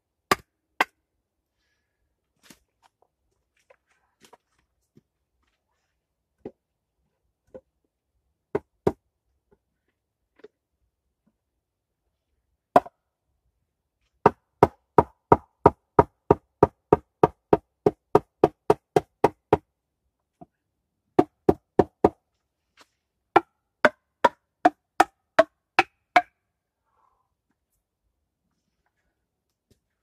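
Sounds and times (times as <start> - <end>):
hatchet hammering on wood: 14.2 - 19.6, 23.4 - 26.3.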